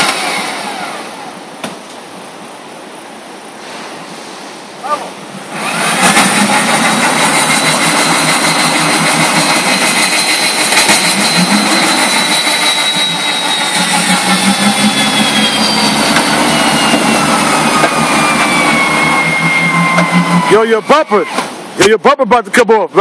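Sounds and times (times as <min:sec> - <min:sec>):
truck engine revving hard: 0:00.0 - 0:01.4, 0:05.4 - 0:21.8
wheels spinning in mud: 0:05.5 - 0:21.4.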